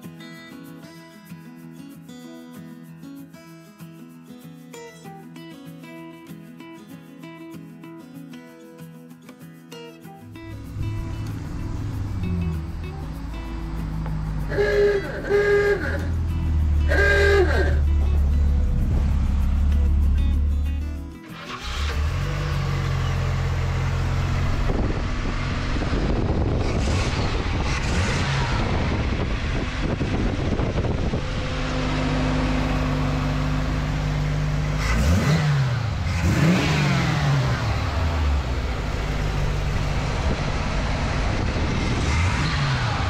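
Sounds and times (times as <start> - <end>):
engine idling with throttle blips: 10.4 - 43.0.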